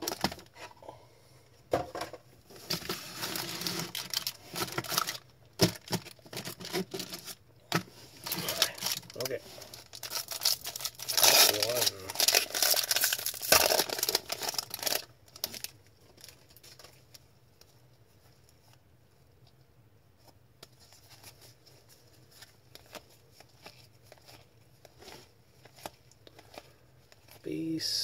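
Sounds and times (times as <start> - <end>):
foil wrapper crinkling and tearing: 2.7 - 7.4, 8.2 - 17.2.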